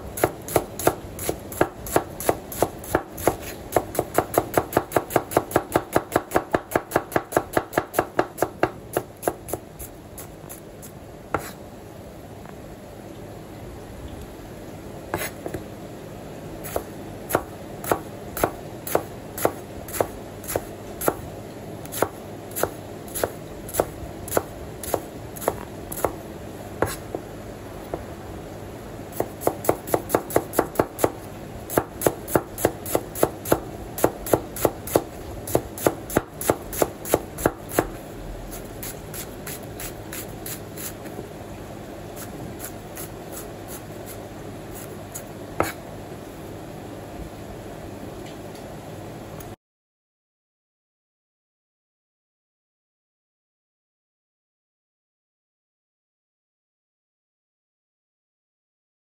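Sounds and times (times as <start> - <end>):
knife chopping on cutting board: 11.4 - 11.6, 15.2 - 15.6, 16.6 - 21.2, 21.9 - 26.2, 26.8 - 27.2, 29.2 - 38.0, 45.6 - 45.8.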